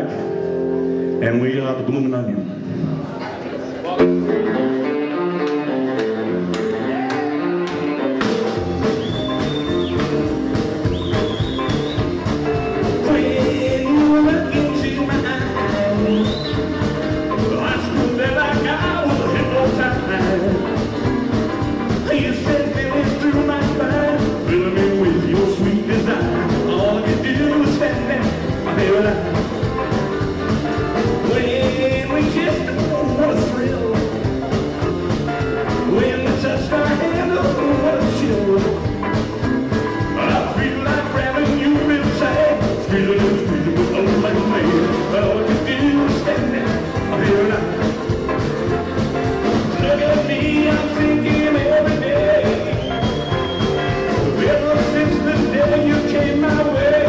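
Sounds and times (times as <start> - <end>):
electric guitar: 0.0 - 1.2, 2.4 - 57.0
rock and roll band playing: 0.0 - 3.1, 3.8 - 57.0
man singing: 10.8 - 30.0, 30.6 - 57.0.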